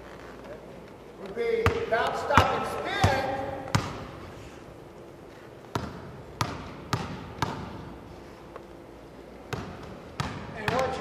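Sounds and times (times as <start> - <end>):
basketball bouncing on wooden floor: 1.6 - 4.1, 5.7 - 7.8, 9.5 - 11.0.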